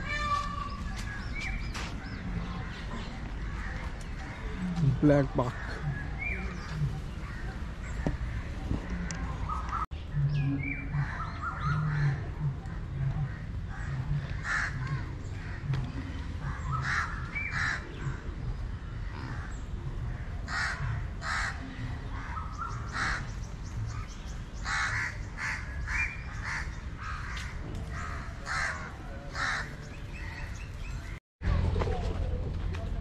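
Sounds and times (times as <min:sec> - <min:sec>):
birds calling: 0:00.0 - 0:31.2.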